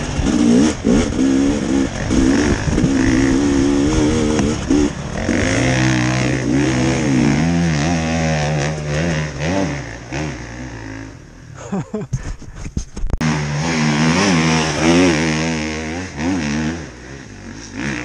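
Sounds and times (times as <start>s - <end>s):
lower engine note: 0.0s - 11.6s
dirt bike engine revving: 0.0s - 11.7s, 13.2s - 18.0s.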